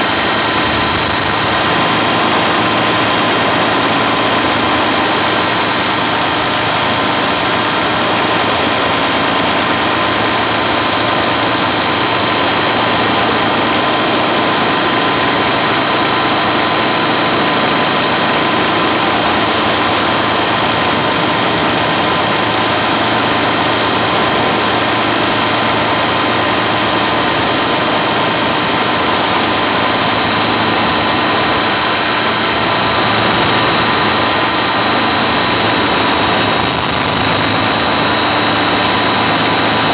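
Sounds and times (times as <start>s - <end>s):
helicopter running: 0.0s - 39.9s.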